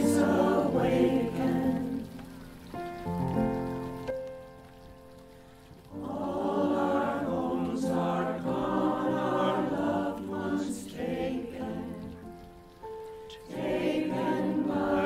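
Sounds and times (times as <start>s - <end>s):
mixed choir singing: 0.0s - 2.2s, 6.0s - 12.3s, 13.4s - 15.0s.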